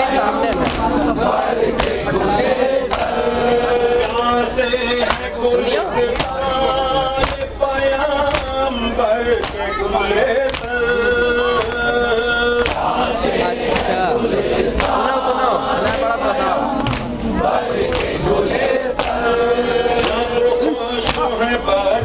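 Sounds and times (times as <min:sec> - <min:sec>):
men chanting in unison: 0:00.0 - 0:22.0
hands slapping chests: 0:00.5 - 0:00.9, 0:01.8 - 0:02.0, 0:05.0 - 0:05.3, 0:06.1 - 0:06.4, 0:10.5 - 0:10.8, 0:12.6 - 0:12.9, 0:13.7 - 0:14.0, 0:14.8 - 0:15.0, 0:16.8 - 0:17.2, 0:17.8 - 0:18.2, 0:18.9 - 0:19.2, 0:20.0 - 0:20.3.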